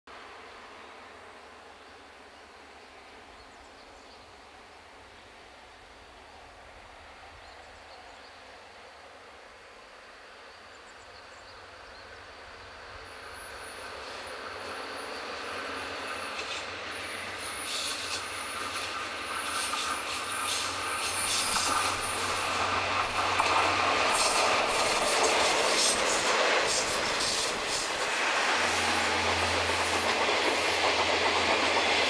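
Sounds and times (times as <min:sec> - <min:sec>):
high wheel squeal: 0:13.4 - 0:30.8
wheels on rails: 0:13.4 - 0:32.0
locomotive engine: 0:13.6 - 0:32.0.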